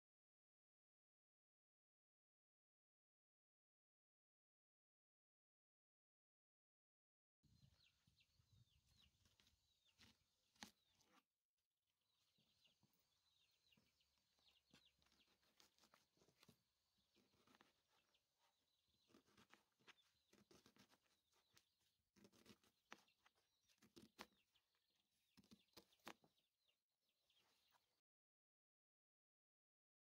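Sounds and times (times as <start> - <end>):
birds chirping: 7.5 - 11.2, 11.9 - 28.0.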